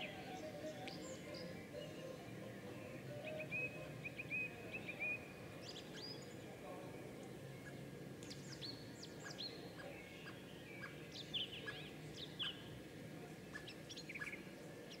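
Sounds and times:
birds chirping and whistling: 0.0 - 4.5
steady background noise: 0.0 - 15.0.

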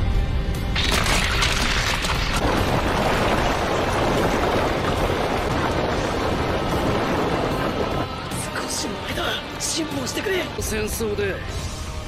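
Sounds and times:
rock cracking: 0.7 - 5.8
rumble of rock being crushed: 0.7 - 7.7.

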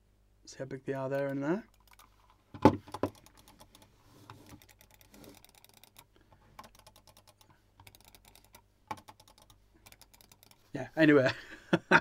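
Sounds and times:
computer mouse clicks: 1.1 - 10.6.

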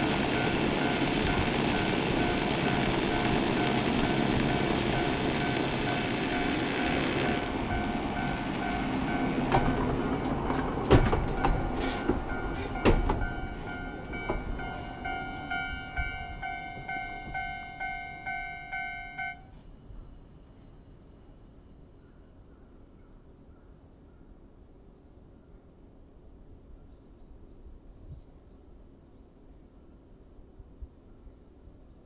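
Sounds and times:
wheels clicking over rail joints: 0.0 - 19.1
level crossing warning bell: 0.0 - 19.5
cable car rumbling past: 0.0 - 20.1.

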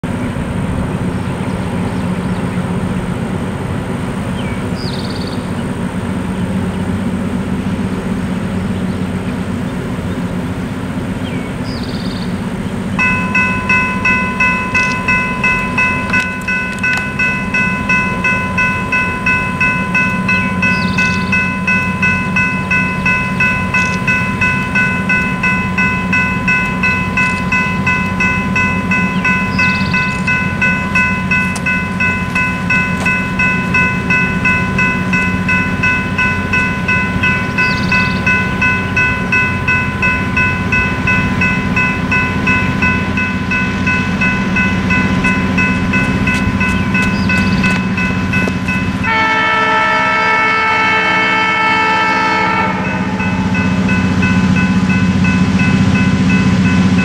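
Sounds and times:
level crossing bell ringing: 13.0 - 50.2, 52.2 - 57.0
bird chirps: 20.0 - 21.6, 29.0 - 30.4, 37.2 - 38.5, 46.6 - 47.9.

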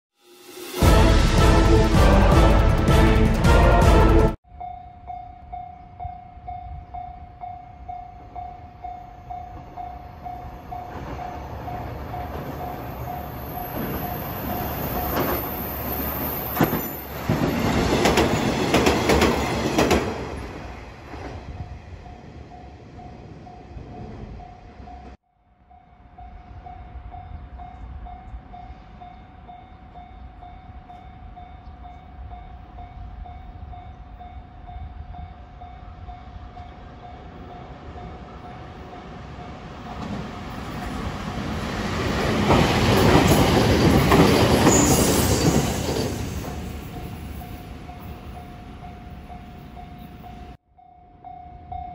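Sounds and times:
diesel railcar passing: 0.2 - 51.9
wheel clatter on rail joints: 39.9 - 47.1.

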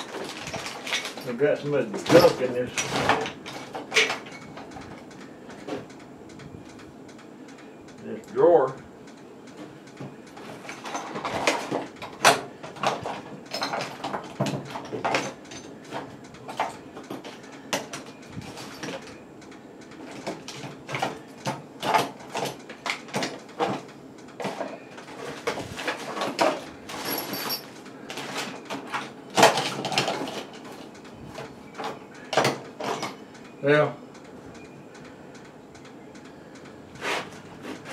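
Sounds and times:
small metal parts clattering: 0.0 - 4.8, 10.4 - 19.2, 21.8 - 30.7, 31.8 - 33.2.

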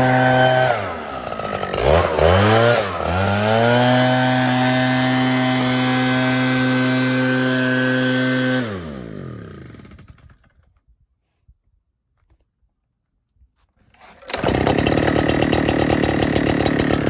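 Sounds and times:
leaf blower engine running: 0.0 - 10.6, 14.0 - 17.0.

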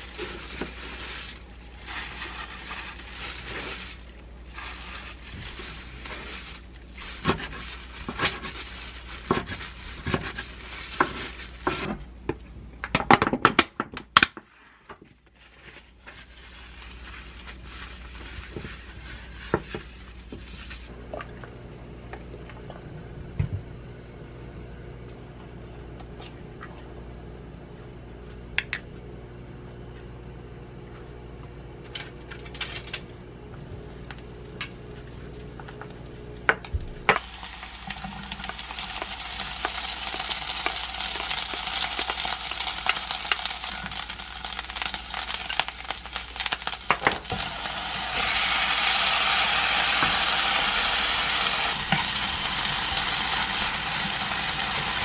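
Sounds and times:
steady hum: 15.8 - 55.0
egg sizzling in oil: 37.1 - 55.0.

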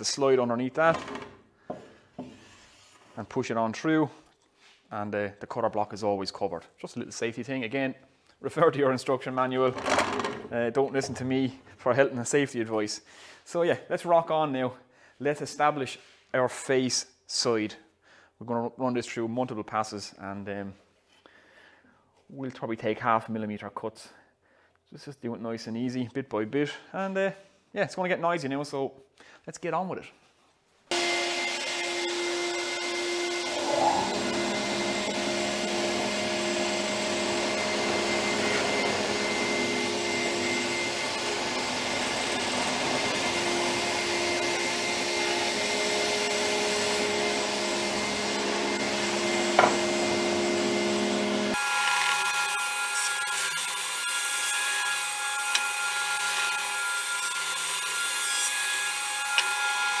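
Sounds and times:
planer machine whine with cutting: 30.9 - 60.0.

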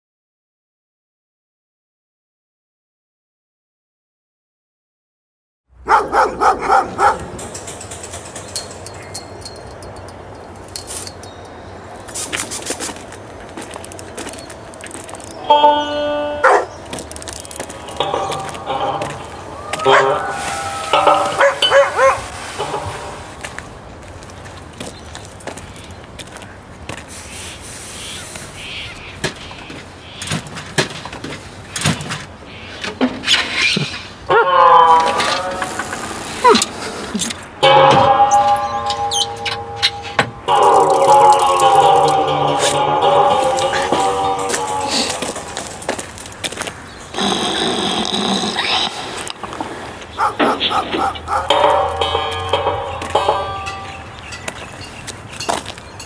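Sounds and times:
dog barking: 5.8 - 7.3, 16.4 - 16.7, 21.4 - 22.2, 34.3 - 34.6, 50.2 - 51.6
metal knocks and clanks: 7.0 - 11.3
light high-pitched ticks: 13.6 - 15.4, 17.0 - 17.8.

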